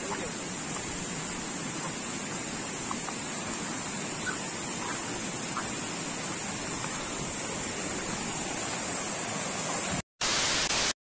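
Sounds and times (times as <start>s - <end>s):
waterfall rushing: 0.0s - 11.0s
loud burst of hiss: 7.2s - 11.0s.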